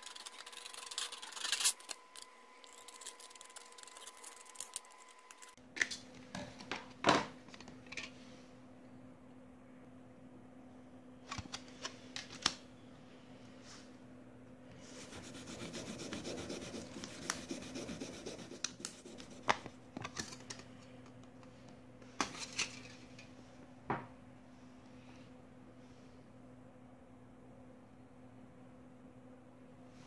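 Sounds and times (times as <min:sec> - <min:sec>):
metal sheet crinkling: 0:00.0 - 0:05.6
steady low hum: 0:12.0 - 0:30.0.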